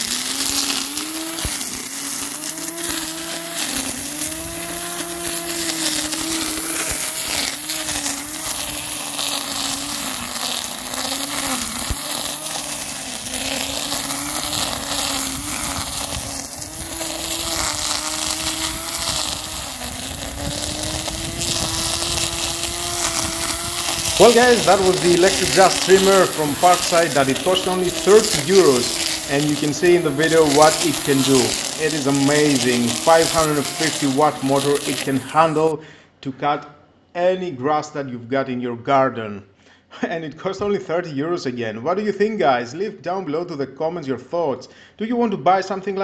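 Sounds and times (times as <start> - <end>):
string trimmer motor whining: 0.0 - 35.8
trimmer line hissing through grass: 0.0 - 35.8.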